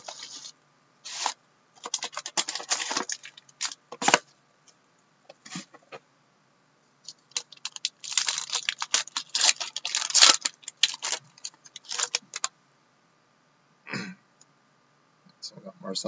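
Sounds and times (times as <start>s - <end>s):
card pack being opened: 0.0s - 0.5s, 1.1s - 4.3s, 7.1s - 12.5s.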